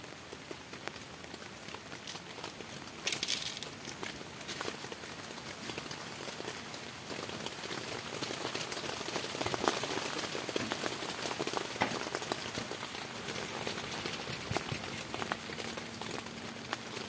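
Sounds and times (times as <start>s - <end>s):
rain pattering: 0.0s - 17.0s
taps and crinkles on aluminium foil: 2.0s - 4.8s.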